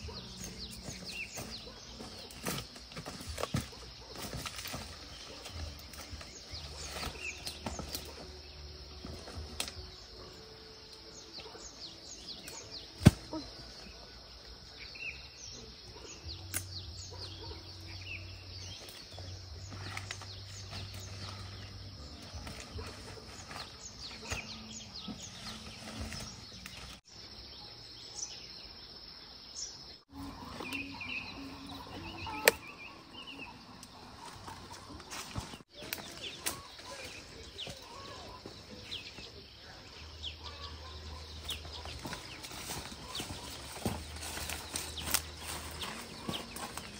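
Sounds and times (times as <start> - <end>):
footsteps in grass: 0.0 - 10.1, 18.6 - 27.1, 33.4 - 39.4, 40.4 - 46.9
birds chirping: 0.0 - 46.9.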